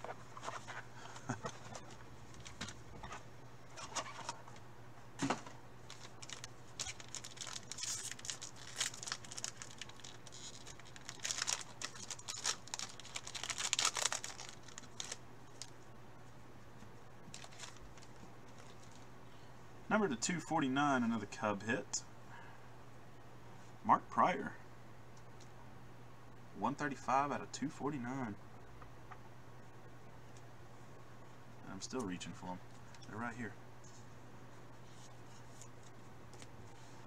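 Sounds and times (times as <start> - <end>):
plastic wrapper crinkling and tearing: 5.9 - 15.7, 17.3 - 19.0.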